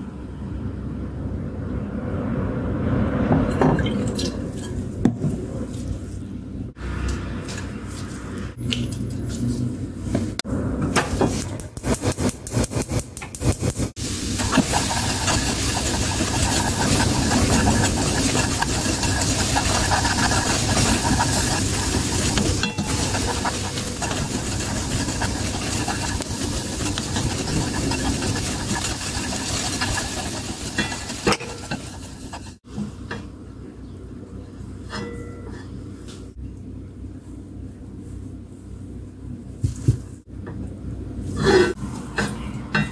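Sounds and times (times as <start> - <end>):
sauce sizzling in a wok: 14.0 - 16.6
spoon scraping wok: 14.0 - 32.6
wooden spoon stirring and knocking: 14.4 - 32.6.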